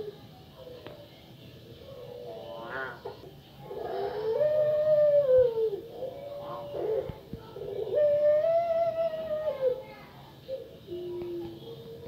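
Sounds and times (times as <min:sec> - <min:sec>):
dove cooing: 0:01.9 - 0:12.0.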